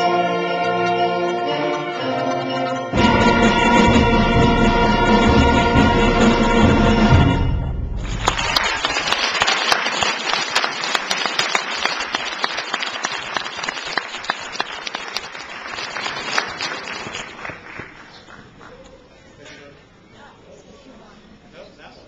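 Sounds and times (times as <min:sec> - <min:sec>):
audience applauding: 0:08.0 - 0:19.2.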